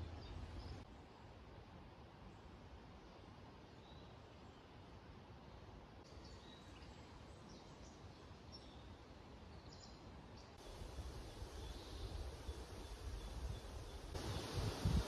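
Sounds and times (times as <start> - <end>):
faint outdoor ambience: 0.0 - 15.0.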